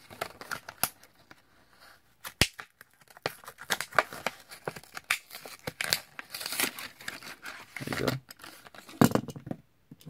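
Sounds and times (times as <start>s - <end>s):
plastic and cardboard crinkling: 0.0s - 9.5s
plastic blister pack cracking: 2.3s - 8.9s.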